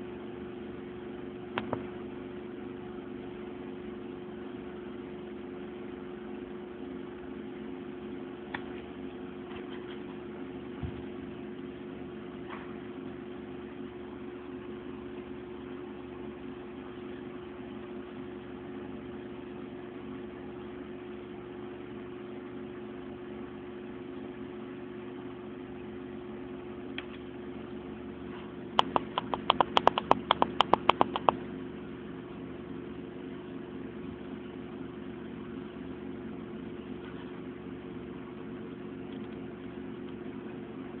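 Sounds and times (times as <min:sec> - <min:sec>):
computer fans humming: 0:00.0 - 0:41.0
sharp clicks: 0:28.8 - 0:31.4.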